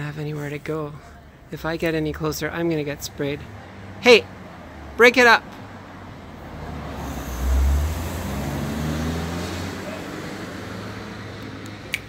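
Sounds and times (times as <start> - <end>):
vehicle engine rumble passing: 3.4 - 12.0.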